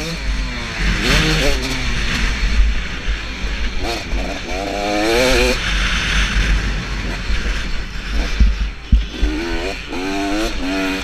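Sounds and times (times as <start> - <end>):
motorcycle engine revving: 0.0 - 11.0
steady low rumble: 5.8 - 10.6
sharp knocks: 8.2 - 9.8.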